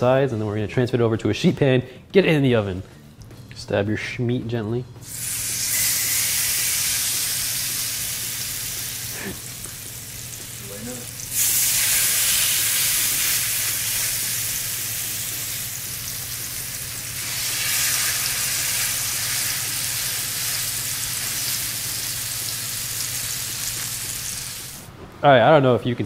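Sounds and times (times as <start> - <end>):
chicken sizzling in hot oil: 5.0 - 24.8.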